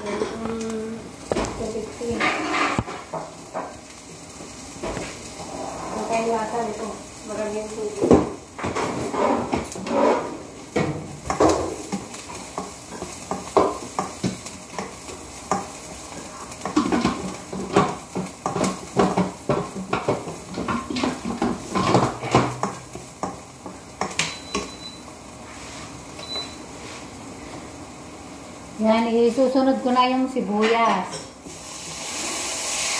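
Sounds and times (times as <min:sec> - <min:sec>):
food sizzling: 0:00.0 - 0:32.9
spatula scraping and knocking wok: 0:01.4 - 0:27.1.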